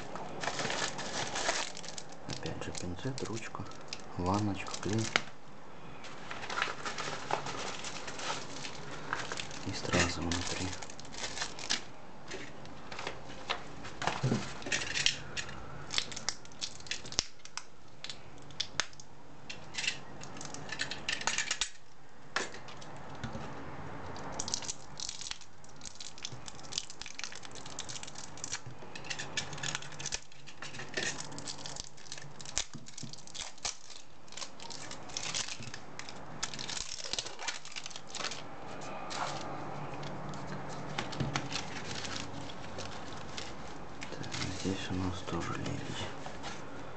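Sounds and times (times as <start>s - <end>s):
rhinestones rattling in bags: 0.0s - 5.2s
plastic bags crinkling: 0.0s - 5.4s, 6.0s - 23.1s, 24.2s - 46.6s.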